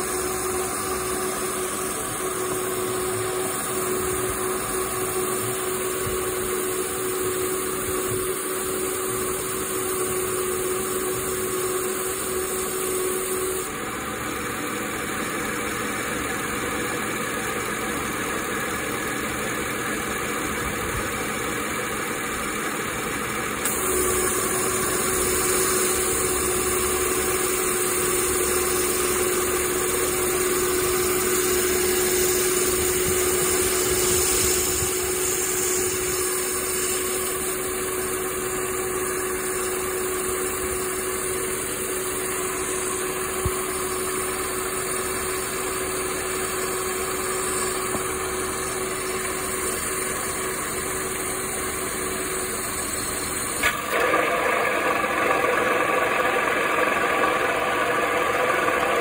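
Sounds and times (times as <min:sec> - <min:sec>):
car engine idling: 0:00.0 - 0:07.0, 0:13.5 - 0:43.4
steady whine: 0:00.0 - 0:59.0.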